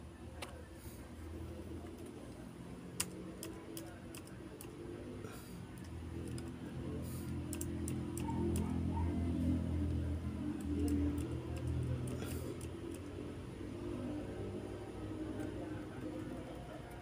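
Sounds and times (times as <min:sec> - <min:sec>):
steady low hum: 0:00.0 - 0:17.0
touchpad and keys clicking: 0:01.8 - 0:04.8, 0:05.7 - 0:08.9, 0:09.8 - 0:13.2, 0:15.2 - 0:17.0.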